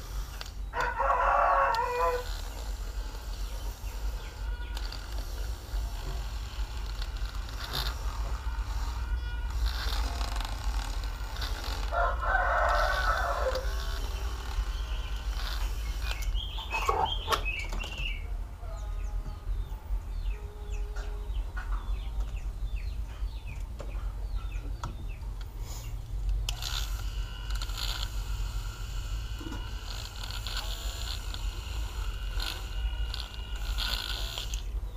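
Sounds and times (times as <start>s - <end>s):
rooster crowing: 0.7s - 2.7s, 11.5s - 15.3s
high bird chirps: 14.7s - 18.9s.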